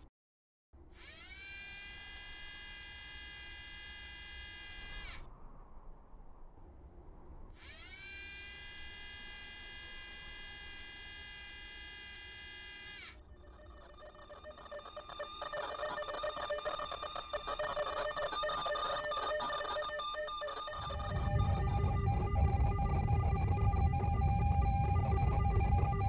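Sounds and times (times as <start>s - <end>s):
high electronic whine: 7.6s - 26.0s
layered sustained electronic tones: 13.2s - 26.0s.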